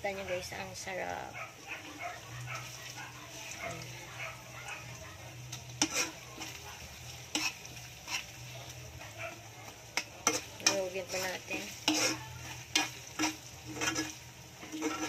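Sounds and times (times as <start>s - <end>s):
food frying in oil: 0.0s - 15.0s
spoon stirring and scraping in pan: 0.0s - 15.0s.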